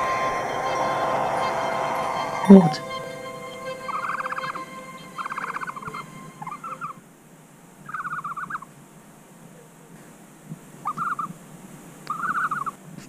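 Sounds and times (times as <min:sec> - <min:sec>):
owl raspy trilled calls: 0:07.9 - 0:08.7, 0:10.8 - 0:11.3, 0:12.1 - 0:12.8.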